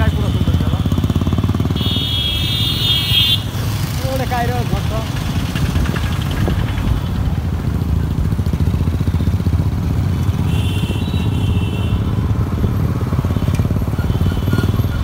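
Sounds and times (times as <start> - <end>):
motorcycle engines running: 0.0 - 15.0.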